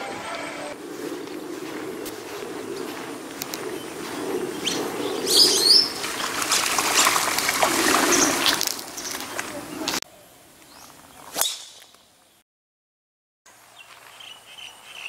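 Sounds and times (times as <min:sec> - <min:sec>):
wings fluttering: 0:00.0 - 0:10.0
birds chirping: 0:00.0 - 0:12.4, 0:13.7 - 0:15.0.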